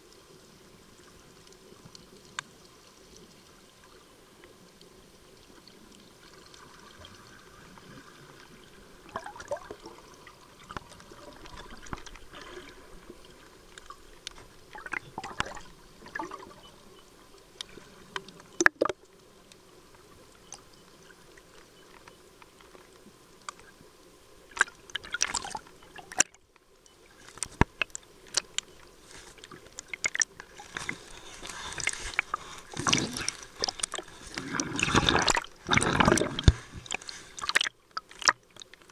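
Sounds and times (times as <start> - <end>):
underwater gurgling and bubbling: 6.1 - 19.0, 27.8 - 38.9.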